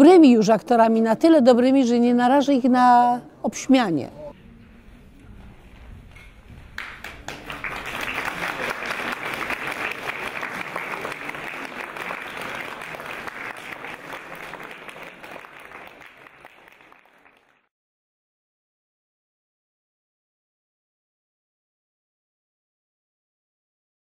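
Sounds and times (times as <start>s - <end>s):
audience applauding: 6.7s - 17.7s.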